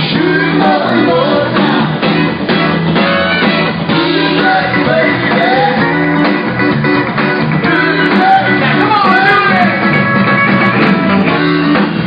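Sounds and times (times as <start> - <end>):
man singing: 0.0 - 2.0, 3.9 - 6.2, 7.6 - 10.0
live rock band: 0.0 - 12.0.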